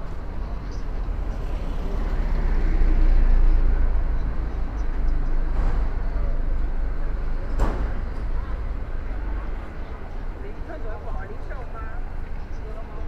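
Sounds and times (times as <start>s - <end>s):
vehicle passing on street: 0.0s - 13.0s.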